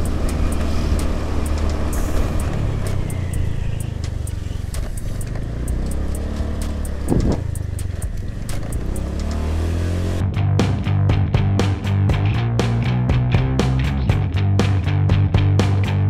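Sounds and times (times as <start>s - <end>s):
faint music with ticking beat: 0.0s - 10.2s
scooter engine hum: 0.0s - 10.2s
road and wind noise: 0.0s - 16.0s.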